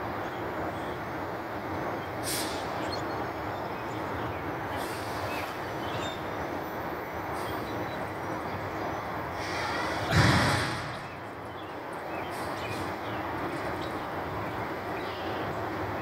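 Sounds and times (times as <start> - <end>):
faint short hisses: 2.2 - 2.7, 9.4 - 11.1.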